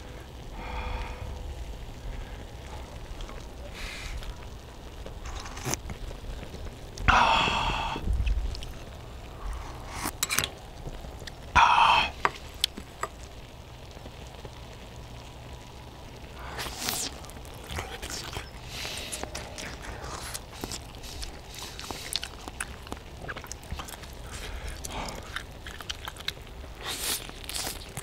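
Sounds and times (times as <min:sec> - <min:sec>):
loud slurps of broth: 0:16.5 - 0:17.2, 0:26.8 - 0:28.0.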